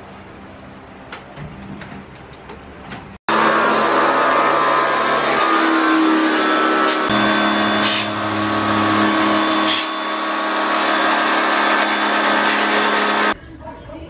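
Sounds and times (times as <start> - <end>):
pressure washer motor humming: 3.3 - 13.4
water jet hissing: 6.8 - 10.1.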